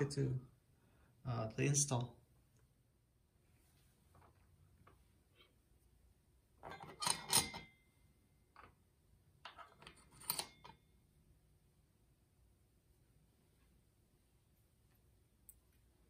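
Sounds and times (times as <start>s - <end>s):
metal springs clinking and rattling: 6.6s - 7.8s.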